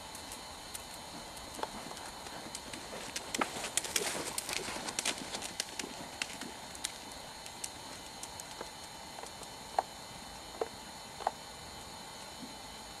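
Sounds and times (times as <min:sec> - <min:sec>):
background hiss: 0:00.0 - 0:13.0
horse hoofbeats: 0:01.1 - 0:07.0.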